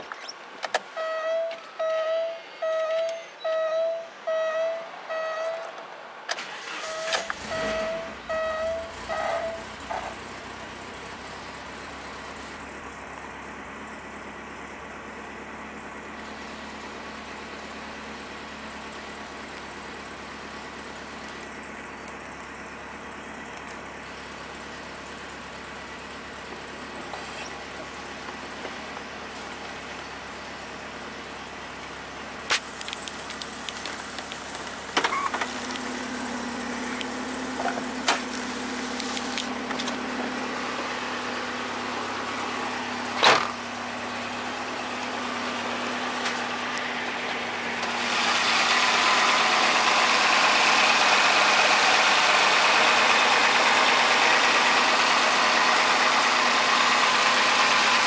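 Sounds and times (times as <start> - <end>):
car engine starting and idling: 0.0 - 58.0
dashboard warning chime pinging: 0.9 - 5.8, 6.6 - 9.7, 35.0 - 35.4.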